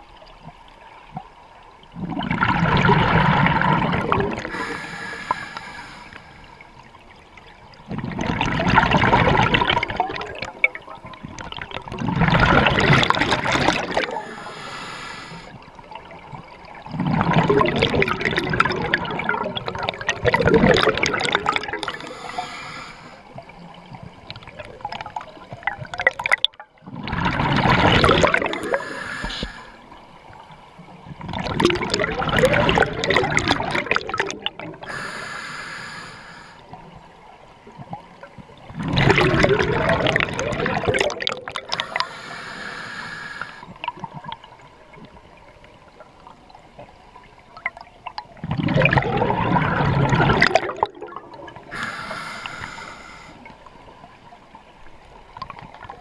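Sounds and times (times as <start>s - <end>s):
exhaled bubbles underwater: 0.0s - 56.0s
regulator inhale hiss: 4.4s - 6.7s, 14.0s - 15.6s, 21.9s - 23.3s, 28.6s - 29.8s, 34.8s - 36.7s, 41.7s - 43.7s, 51.7s - 53.6s.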